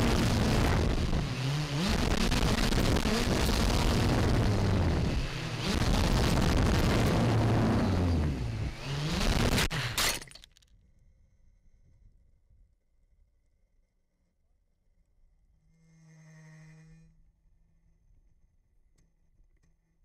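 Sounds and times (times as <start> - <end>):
wind noise: 0.0 - 10.0
drone propellers whirring: 0.0 - 10.3.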